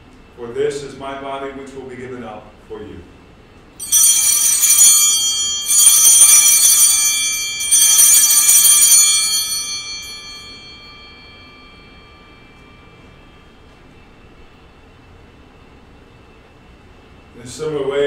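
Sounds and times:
altar bells jingling: 0:03.8 - 0:13.7.

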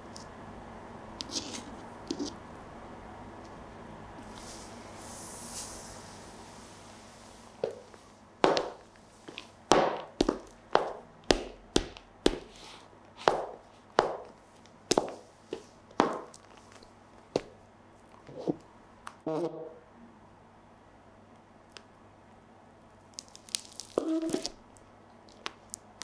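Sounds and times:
heels clicking on hard floor: 0:07.6 - 0:17.6.

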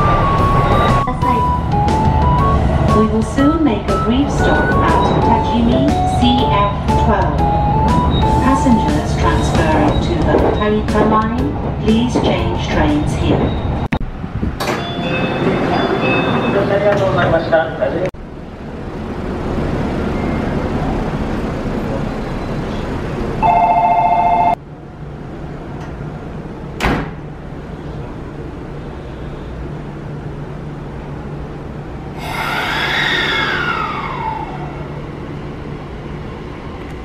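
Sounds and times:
station noise: 0:00.0 - 0:14.0
electric train humming: 0:00.0 - 0:14.3, 0:29.6 - 0:37.0
train motor whine: 0:32.2 - 0:35.3.

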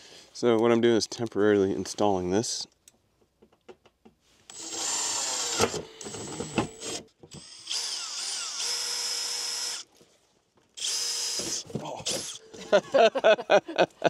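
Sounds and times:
power drill boring into wall: 0:04.5 - 0:09.9, 0:10.8 - 0:12.4.

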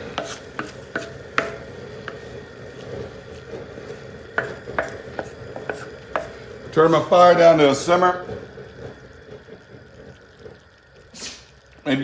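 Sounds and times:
spatula scraping metal cooker: 0:00.0 - 0:09.0
cooking fire hissing: 0:00.0 - 0:12.0.

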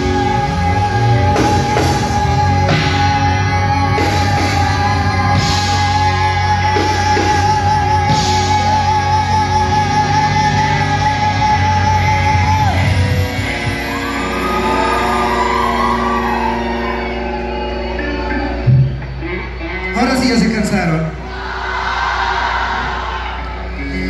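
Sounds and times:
person singing: 0:00.0 - 0:18.4
electric guitar: 0:00.0 - 0:21.4
live rock band playing: 0:00.0 - 0:21.5.

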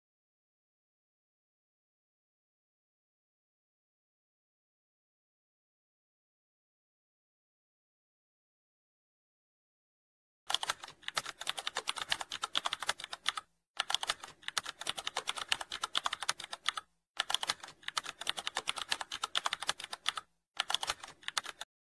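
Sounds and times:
keyboard key clicks: 0:10.5 - 0:21.6.

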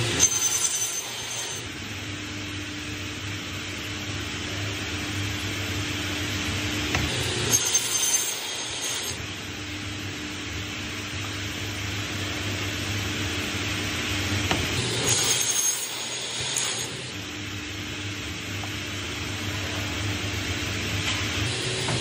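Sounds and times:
saw motor humming: 0:00.0 - 0:01.7, 0:06.4 - 0:09.4, 0:14.4 - 0:17.4, 0:21.4 - 0:22.0
saw cutting wooden boards: 0:06.9 - 0:09.2, 0:14.5 - 0:17.1.

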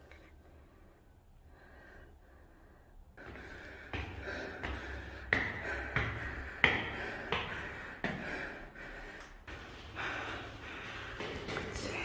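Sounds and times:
hard breathing: 0:00.0 - 0:12.0
footsteps on stone stairs: 0:03.2 - 0:12.0.

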